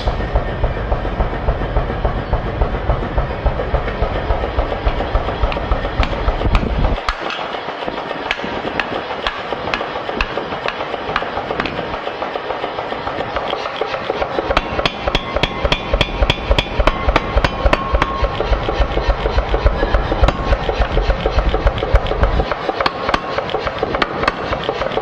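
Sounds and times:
forge shop noise: 0.0 - 25.0
power hammer pounding hot steel: 0.0 - 25.0.

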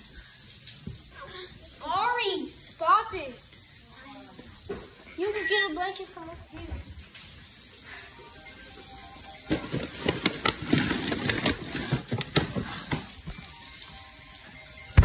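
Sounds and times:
crackling and rustling of handling: 9.4 - 13.6.

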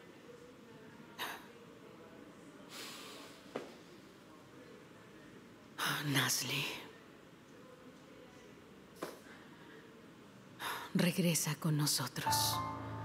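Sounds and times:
person breathing: 2.7 - 3.5.

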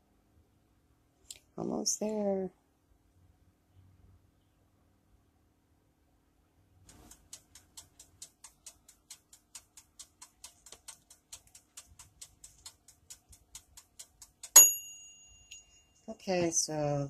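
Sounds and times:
wind-up timer ticking: 6.8 - 15.7
timer bell ding: 14.5 - 16.2.

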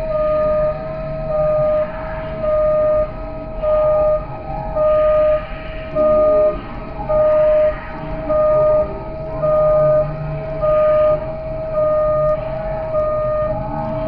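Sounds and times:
electronic beep: 0.0 - 14.0.

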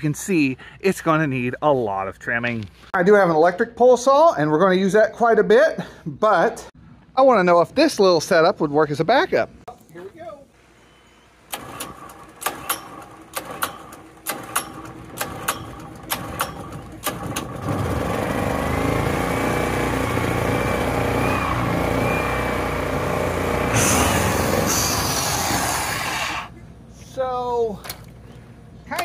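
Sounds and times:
generator running: 11.4 - 26.4
electric saw motor whine: 17.6 - 26.0
hiss: 23.7 - 26.5.

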